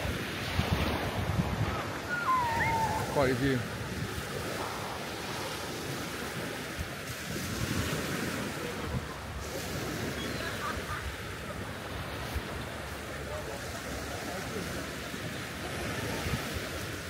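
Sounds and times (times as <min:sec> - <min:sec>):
wind buffeting microphone: 0:00.0 - 0:10.5
sea surf washing onto beach: 0:00.0 - 0:17.0.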